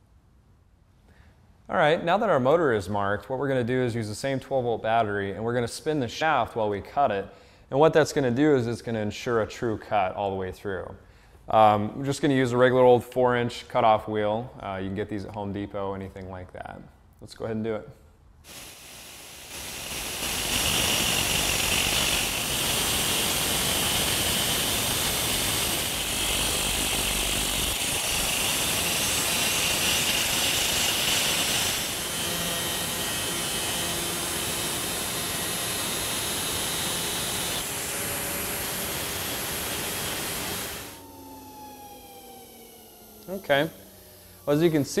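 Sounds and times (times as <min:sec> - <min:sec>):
angle grinder cutting metal: 0:18.5 - 0:45.0.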